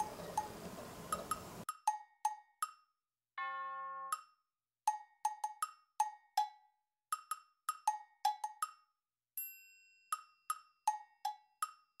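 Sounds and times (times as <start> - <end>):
bouncy wood-block tune: 0.0 - 9.0, 10.1 - 12.0
bell-like chime: 9.4 - 10.5.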